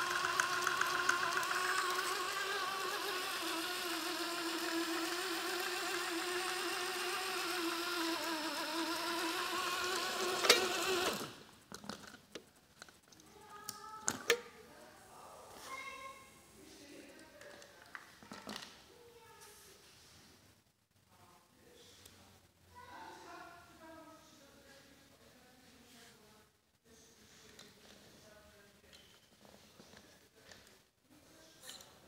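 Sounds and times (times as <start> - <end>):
toy truck motor whining: 0.0 - 11.5.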